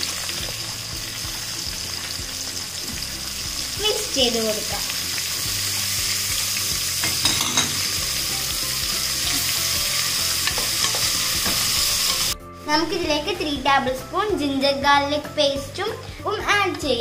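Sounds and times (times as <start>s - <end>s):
onions sizzling in oil: 0.0s - 12.4s.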